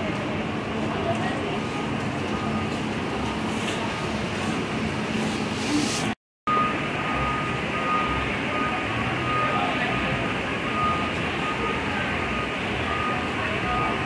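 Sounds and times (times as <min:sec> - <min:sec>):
traffic rumble: 0:00.0 - 0:14.0
faint high beep: 0:06.5 - 0:14.0.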